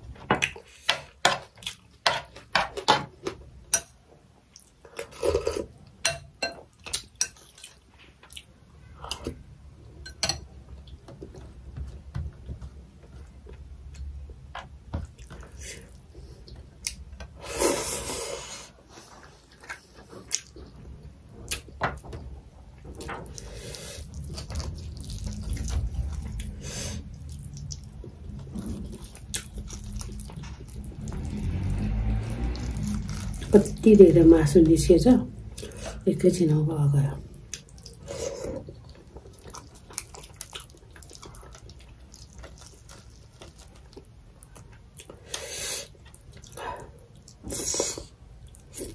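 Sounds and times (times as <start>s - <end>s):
wet chewing with smacks: 37.4s - 48.9s.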